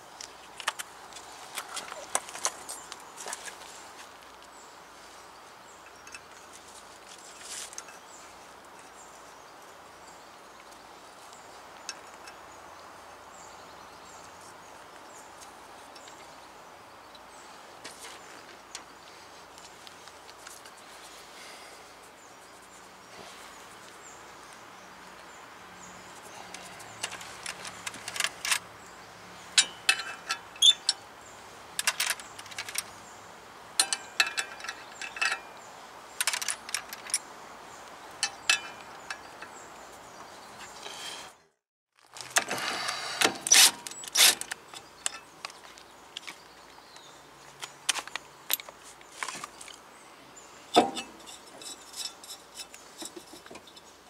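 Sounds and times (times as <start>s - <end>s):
metal tools clinking: 29.5s - 31.0s, 31.8s - 32.9s, 33.8s - 35.6s, 36.2s - 37.2s, 38.2s - 39.6s, 43.3s - 45.6s, 50.7s - 54.0s.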